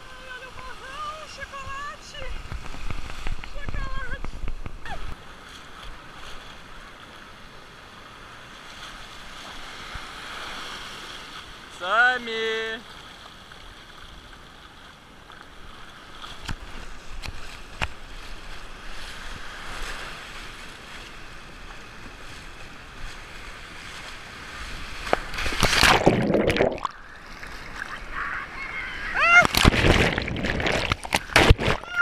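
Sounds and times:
sea surf washing: 0:00.0 - 0:13.5, 0:15.5 - 0:32.0.

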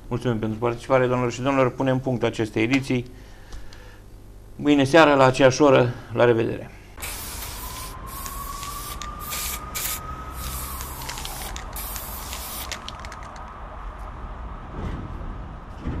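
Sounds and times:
spray paint can hissing: 0:07.0 - 0:13.4.

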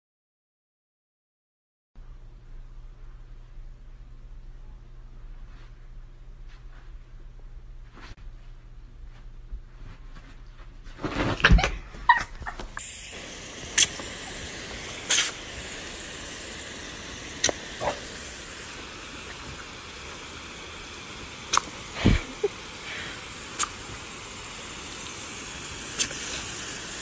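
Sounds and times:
hose nozzle spraying water: 0:12.5 - 0:27.0.

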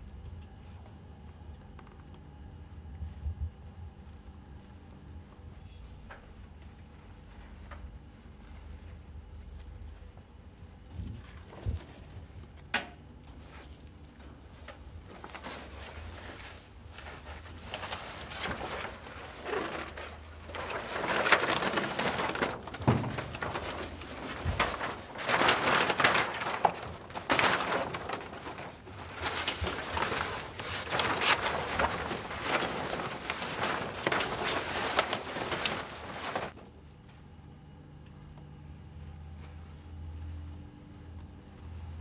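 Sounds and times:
blind slats rustling and clattering: 0:11.0 - 0:36.7.

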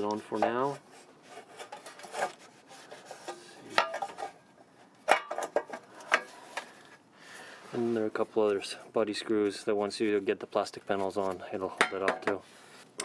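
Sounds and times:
metal plate scraping and knocking: 0:01.4 - 0:04.4.

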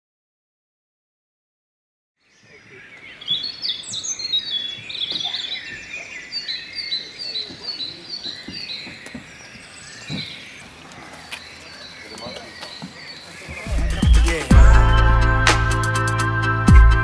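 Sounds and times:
songbirds singing: 0:02.2 - 0:15.4
bird repeating chirped note: 0:13.6 - 0:16.2.

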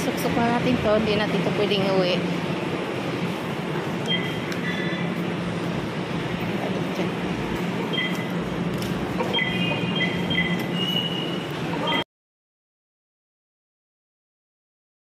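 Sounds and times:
station concourse din: 0:00.0 - 0:12.0
short high electronic beeps: 0:04.1 - 0:05.0, 0:07.9 - 0:08.4, 0:09.3 - 0:12.0.

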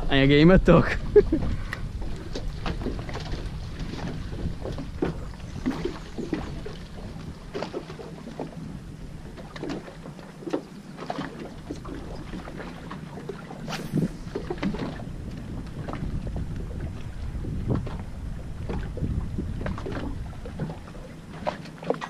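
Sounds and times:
water lapping against boat hull: 0:01.1 - 0:22.0
knocks and splashes: 0:02.3 - 0:08.6
low rumble: 0:13.6 - 0:21.3.

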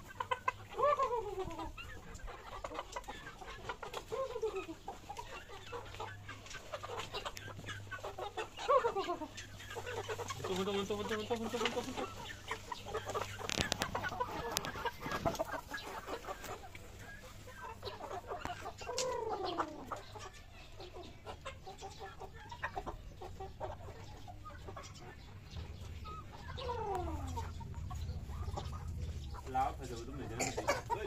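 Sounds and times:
chicken long falling calls: 0:00.0 - 0:10.7, 0:11.5 - 0:20.4, 0:25.8 - 0:29.5
chickens clucking: 0:00.0 - 0:31.0.

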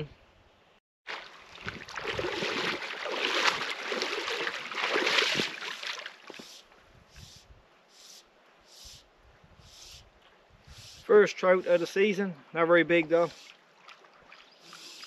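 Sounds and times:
shallow water splashing around legs: 0:01.1 - 0:06.4.

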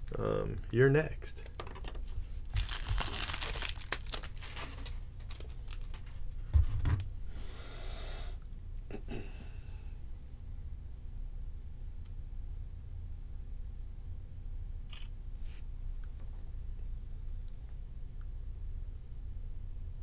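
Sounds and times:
cards and wrappers rustling: 0:00.6 - 0:06.3.

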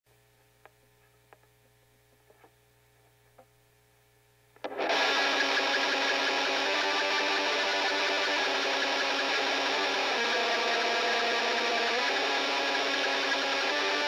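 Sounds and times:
faint low hum: 0:00.1 - 0:04.8
metal band with distorted guitars: 0:04.7 - 0:14.0.

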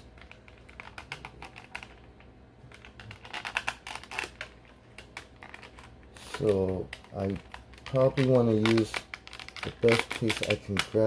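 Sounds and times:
plastic tray clicks and crackles: 0:02.7 - 0:11.0.

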